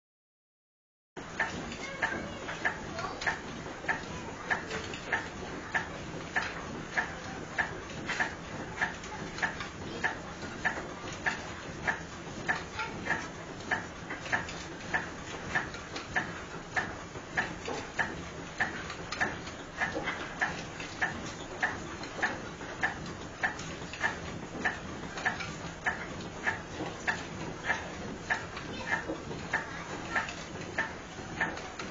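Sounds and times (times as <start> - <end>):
sifter machine knocking rhythmically: 1.2 - 31.9.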